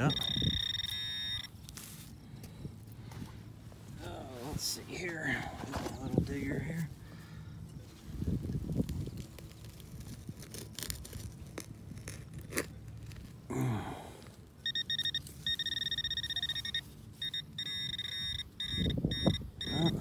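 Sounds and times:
pinpointer electronic tone and beeps: 0.0 - 1.5, 14.6 - 20.0.

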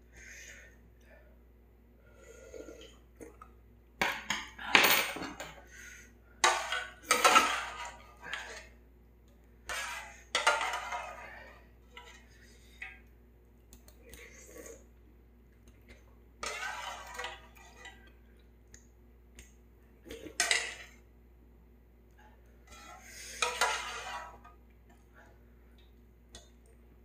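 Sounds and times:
metal utensil scraping in pot: 6.4 - 8.7, 9.7 - 12.9, 16.4 - 18.1, 20.1 - 21.0, 22.7 - 24.5.

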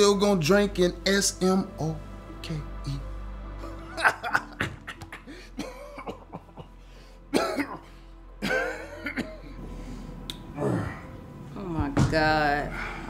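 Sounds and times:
faint background music: 0.0 - 13.0
man coughing: 4.0 - 9.6.

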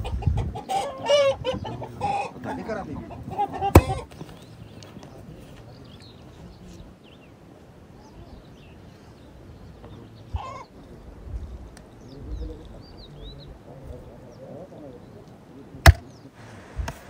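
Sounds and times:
farm animal calls: 0.0 - 4.8, 8.0 - 11.2
low outdoor background: 0.0 - 17.0
faint bird chirps: 3.8 - 16.4
sharp loud knock: 15.9 - 16.1.

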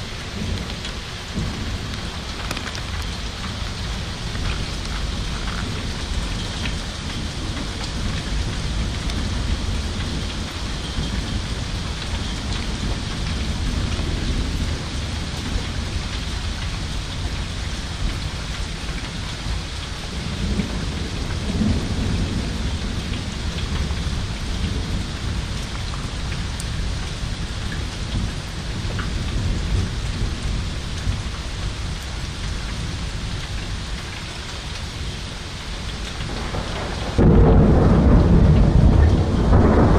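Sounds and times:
steady rain: 0.0 - 39.9
thunder rolling: 36.3 - 39.9.

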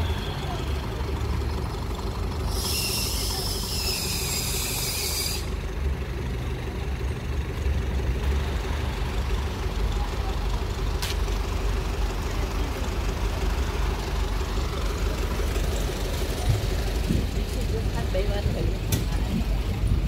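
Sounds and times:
idling vehicle engines: 0.0 - 20.0.

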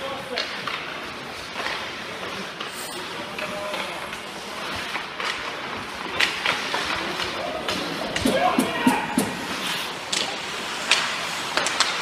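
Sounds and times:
hockey sticks clacking: 0.2 - 12.0
skate blades scraping ice: 3.9 - 12.0.

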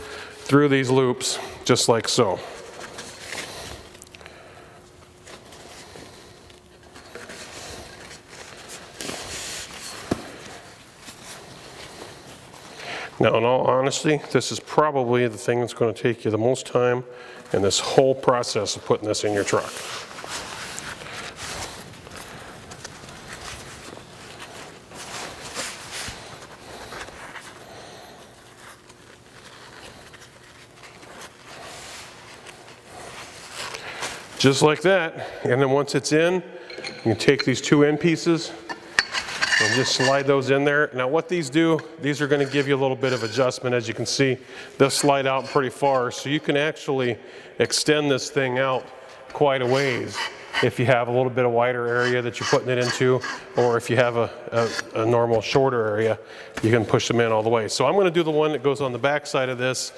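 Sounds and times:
heavy fabric rustling and scraping: 19.3 - 27.6.

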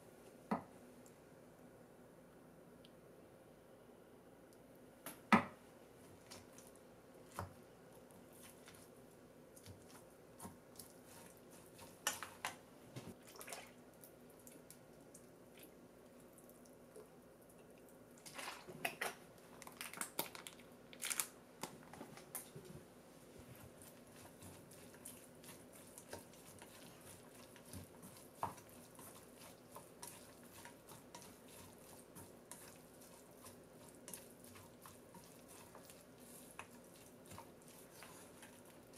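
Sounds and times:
wet squishes: 13.1 - 21.2.

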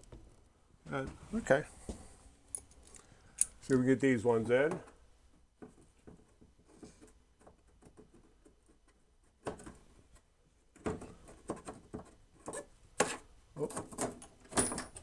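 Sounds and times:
bolts clicking and knocking: 7.4 - 15.0.

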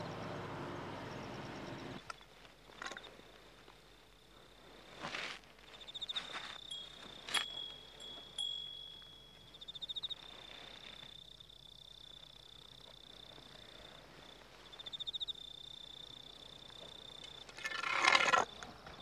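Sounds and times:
insect trilling: 5.7 - 13.3.

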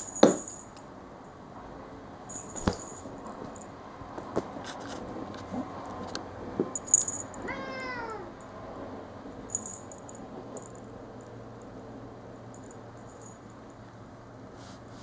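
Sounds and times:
high jingles: 0.0 - 0.8, 2.3 - 3.8, 6.8 - 7.6, 9.4 - 11.4, 12.4 - 13.9
cat meowing: 7.4 - 8.4.

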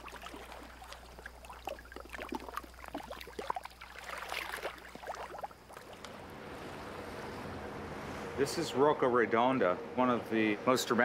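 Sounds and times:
shallow water splashing: 0.0 - 8.4.

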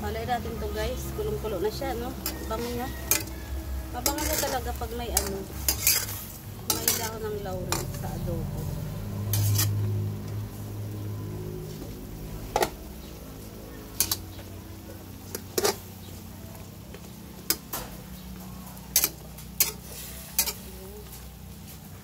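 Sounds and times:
metal spatula clinking on pan: 2.2 - 3.4, 4.0 - 8.0, 14.0 - 14.2, 18.9 - 20.7.

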